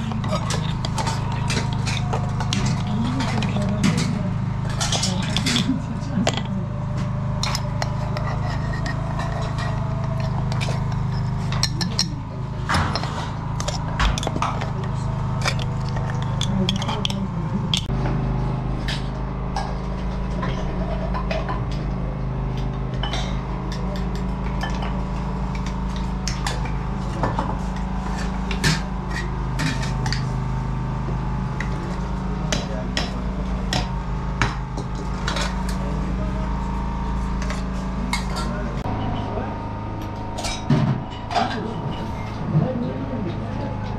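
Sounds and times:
metal lids and spoons clinking: 0:00.0 - 0:17.9, 0:22.6 - 0:30.5, 0:32.5 - 0:35.8, 0:37.3 - 0:38.6
porcelain teapots clinking: 0:00.0 - 0:17.9
steady low hum: 0:00.0 - 0:43.9.

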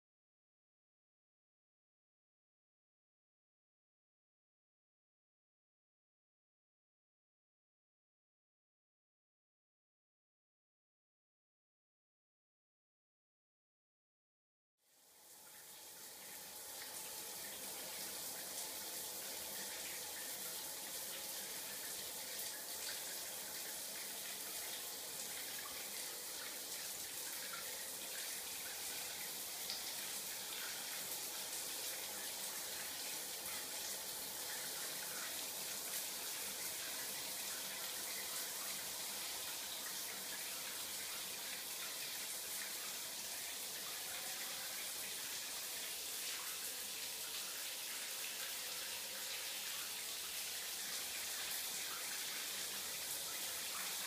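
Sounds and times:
running water hiss: 0:15.3 - 0:54.0.

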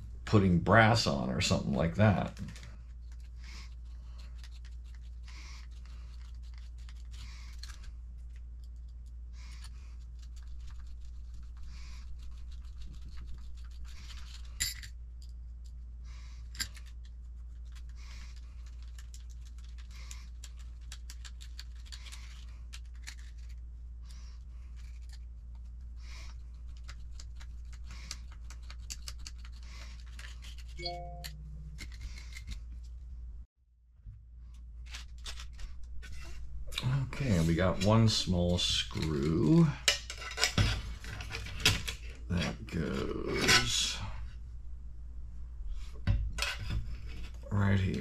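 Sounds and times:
steady low hum: 0:29.6 - 0:33.5, 0:34.1 - 0:48.0.

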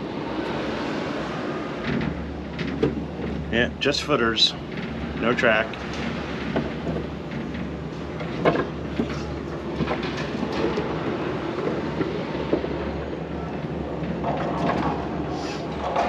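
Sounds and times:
ride vehicle rumbling: 0:00.0 - 0:16.0.

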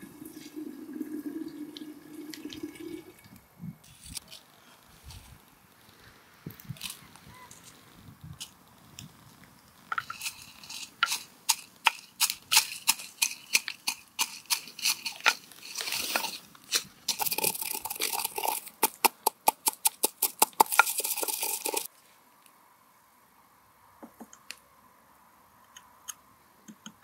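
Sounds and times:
dried peppers crunching: 0:06.8 - 0:21.9.

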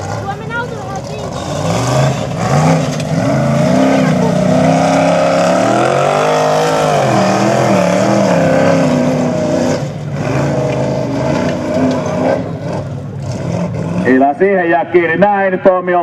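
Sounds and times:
buggy engine revving: 0:00.0 - 0:16.0.

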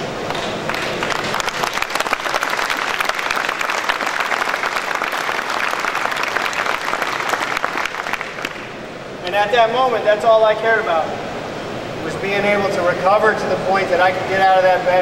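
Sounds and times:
audience applauding: 0:00.3 - 0:08.8.

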